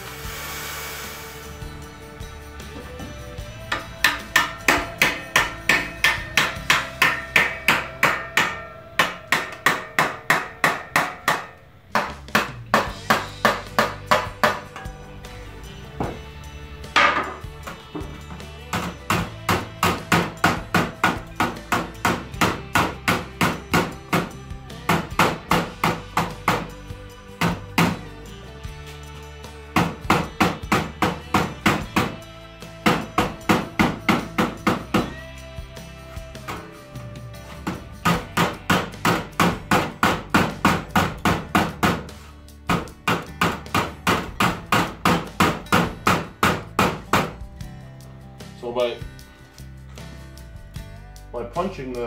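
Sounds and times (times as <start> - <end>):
hammer striking chisel on metal: 2.6 - 15.2, 16.9 - 26.8, 37.6 - 47.4
hammer striking sheet metal: 3.7 - 15.0.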